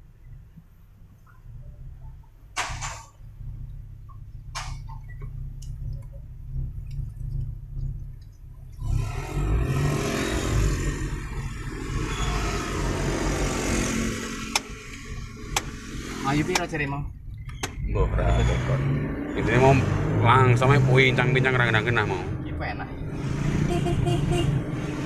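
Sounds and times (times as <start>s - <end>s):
car engine rumbling: 0.0s - 25.0s
engine clicks: 0.5s - 8.9s, 14.3s - 17.9s
road rushing noise: 2.6s - 25.0s.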